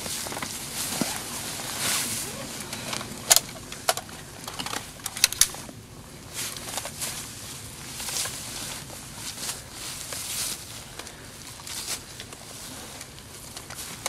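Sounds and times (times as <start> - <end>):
clothing and dry leaves rustling: 0.0 - 14.0
rifle mechanical clicks: 2.7 - 5.6.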